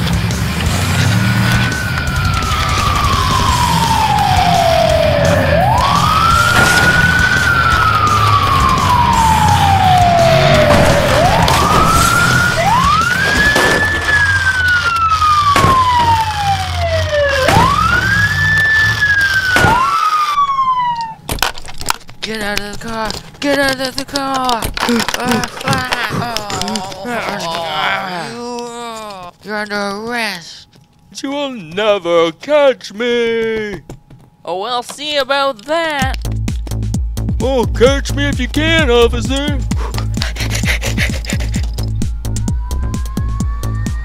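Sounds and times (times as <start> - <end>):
background music: 0.0 - 18.2, 34.3 - 44.0
police siren wailing: 0.1 - 21.5, 24.8 - 28.6, 37.6 - 44.0.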